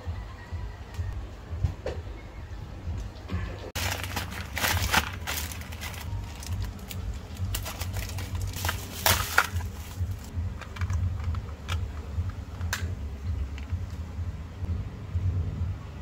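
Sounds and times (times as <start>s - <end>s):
low hum: 0.0s - 16.0s
plastic packaging crinkling: 3.8s - 10.9s.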